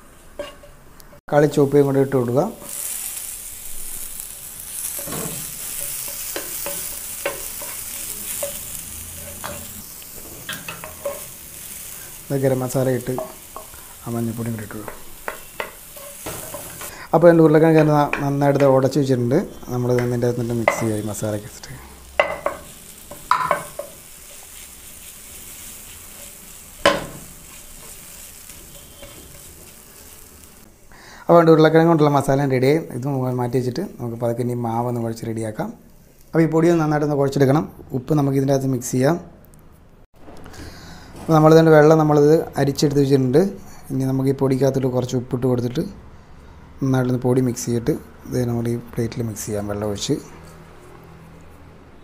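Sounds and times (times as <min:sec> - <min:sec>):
vegetables sizzling in hot oil: 0:01.3 - 0:35.0
spatula scraping a pan: 0:22.2 - 0:30.2
utensil knocking against pan: 0:23.2 - 0:23.9.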